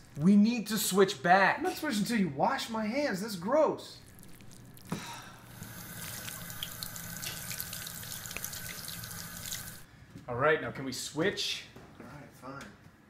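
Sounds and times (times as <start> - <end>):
hands washing and splashing: 4.0 - 9.8
faucet running: 4.2 - 9.9.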